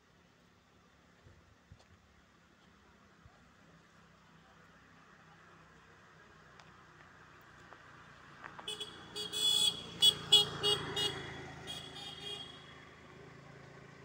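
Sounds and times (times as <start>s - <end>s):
vehicle engine humming: 2.1s - 14.0s
vehicle horn honking: 8.7s - 12.8s.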